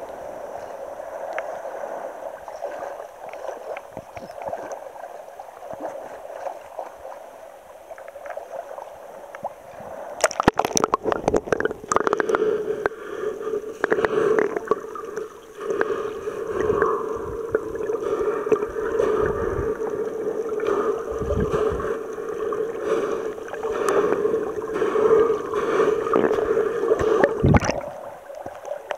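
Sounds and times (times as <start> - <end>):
underwater gurgling: 0.0 - 28.9
water lapping: 0.6 - 28.9
water splashing: 1.1 - 28.9.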